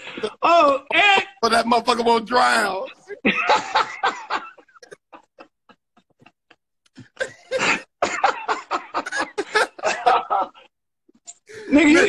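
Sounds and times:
men laughing: 0:02.9 - 0:10.8
gasping coughs: 0:07.0 - 0:08.4.

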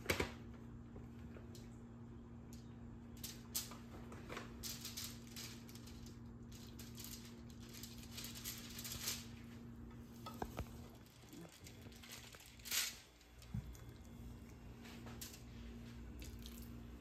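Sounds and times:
faint steady hum: 0:00.0 - 0:17.0
plastic bag crinkling: 0:03.2 - 0:09.6, 0:10.2 - 0:14.2.

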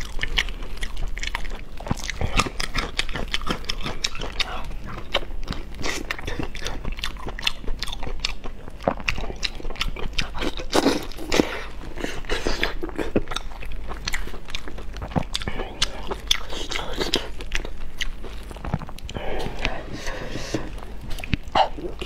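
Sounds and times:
wet chewing: 0:00.0 - 0:22.0.

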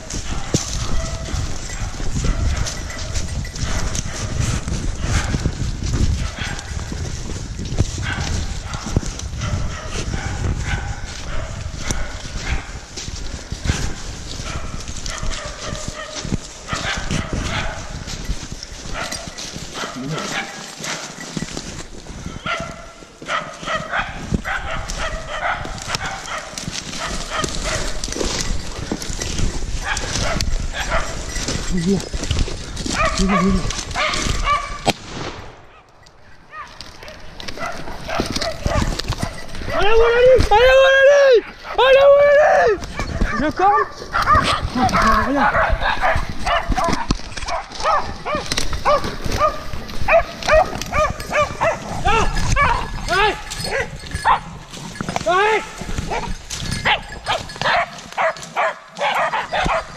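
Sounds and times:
dog barking: 0:00.0 - 0:04.4, 0:05.0 - 0:05.5, 0:06.2 - 0:06.8, 0:08.0 - 0:12.9, 0:13.6 - 0:18.0, 0:18.9 - 0:21.2, 0:22.4 - 0:28.0, 0:29.8 - 0:31.4, 0:32.9 - 0:34.9, 0:36.5 - 0:40.0, 0:41.4 - 0:42.0, 0:42.9 - 0:54.5, 0:56.1 - 0:59.9
footsteps through dry leaves: 0:00.0 - 0:40.8, 0:41.4 - 0:59.9.

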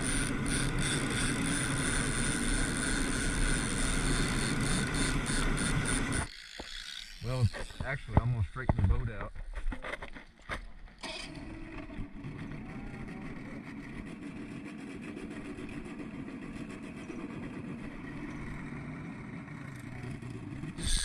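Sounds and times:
outboard motor running: 0:00.0 - 0:21.0.

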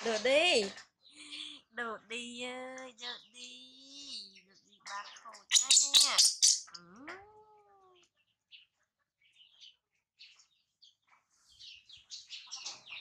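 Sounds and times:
baby monkey squeaking and chirping: 0:03.0 - 0:04.4, 0:05.4 - 0:07.2.

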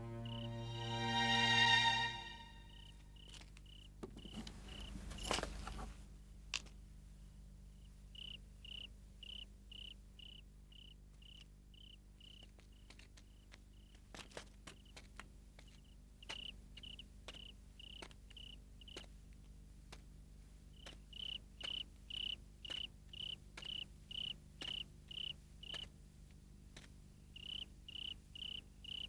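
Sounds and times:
cricket chirping: 0:00.0 - 0:05.3, 0:07.7 - 0:14.0, 0:15.6 - 0:19.1, 0:20.7 - 0:25.9, 0:27.2 - 0:29.0.

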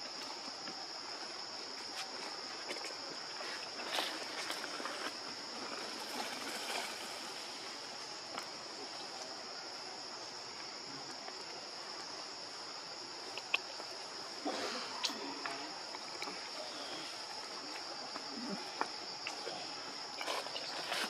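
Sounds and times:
background hiss: 0:00.0 - 0:21.0
insects droning: 0:00.0 - 0:21.0.

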